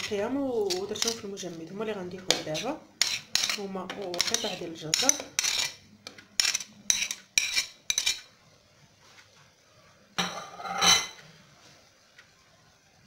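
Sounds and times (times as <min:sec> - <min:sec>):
spoon clattering in a pot: 0:02.3 - 0:05.8, 0:06.4 - 0:08.3.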